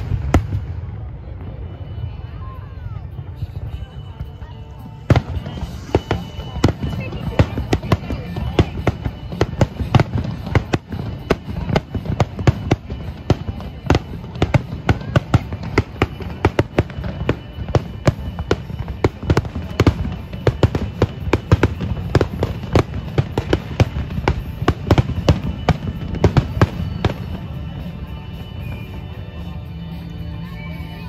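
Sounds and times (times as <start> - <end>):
fireworks shells bursting: 5.1 - 27.8.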